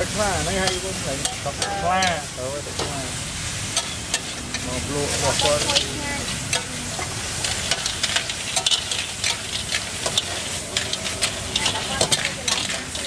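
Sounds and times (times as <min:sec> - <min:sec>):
frying sizzle: 0:00.0 - 0:13.0
metal spatulas scraping woks: 0:03.7 - 0:13.0.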